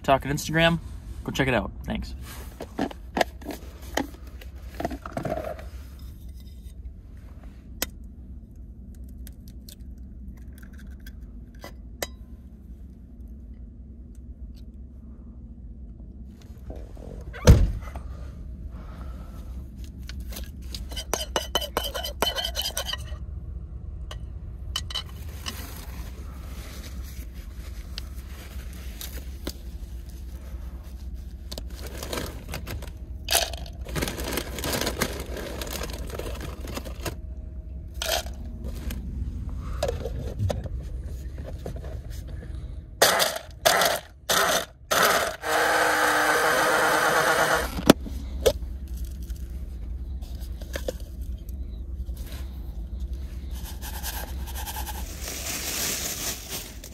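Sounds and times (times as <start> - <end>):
steady low hum: 0.0 - 56.9
blender crushing snacks: 31.8 - 37.2, 43.0 - 47.9.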